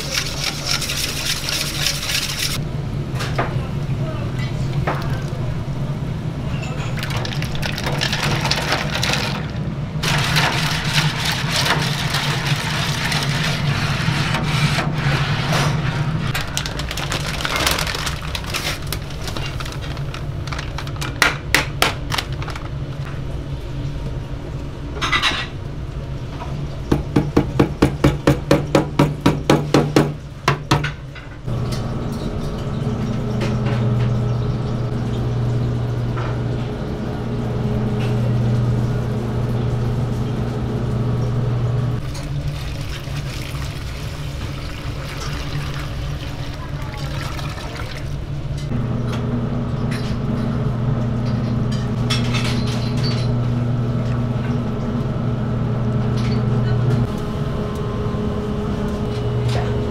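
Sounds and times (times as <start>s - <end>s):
ice cubes tipped into liquid: 7.0s - 9.6s
steady machine hum: 31.5s - 43.4s, 44.2s - 59.9s
electric dough mixer running: 53.4s - 59.9s.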